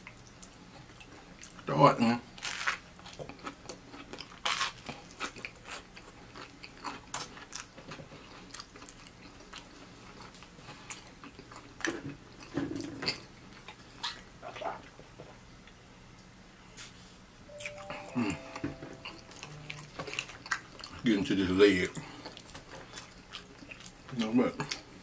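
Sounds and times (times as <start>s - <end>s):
crunching toast: 2.4s - 11.8s
wet chewing: 19.1s - 21.2s, 21.9s - 25.0s.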